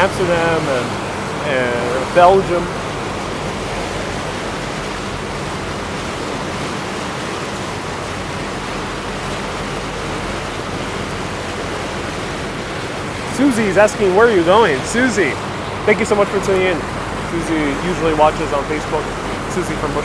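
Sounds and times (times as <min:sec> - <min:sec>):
low even hum: 0:00.0 - 0:20.0
water rushing: 0:00.0 - 0:20.0.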